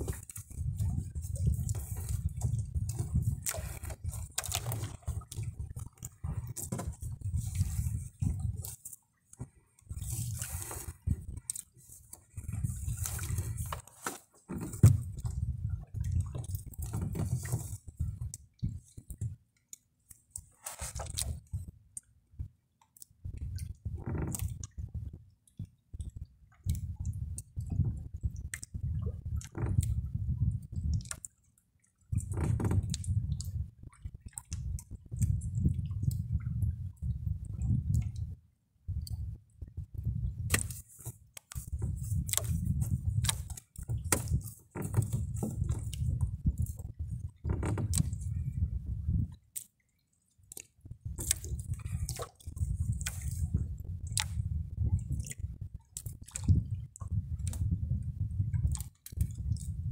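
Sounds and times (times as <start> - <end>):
water dripping and splashing: 0.0 - 21.6, 40.4 - 48.5, 49.3 - 57.6.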